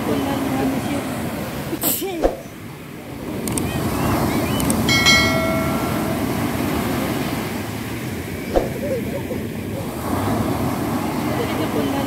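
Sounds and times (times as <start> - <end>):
waves on a pebble beach: 0.0 - 12.0
bell-like chime: 4.9 - 7.1.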